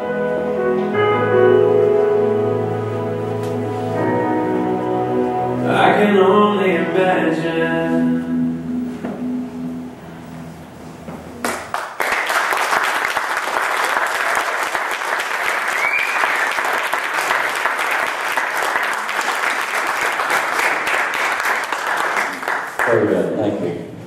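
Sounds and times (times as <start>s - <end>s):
backing music: 0.0s - 11.5s
audience clapping: 11.4s - 23.5s.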